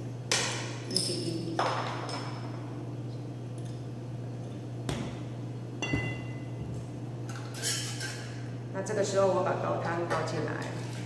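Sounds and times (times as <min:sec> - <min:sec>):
metallic ping: 0:05.8 - 0:06.5.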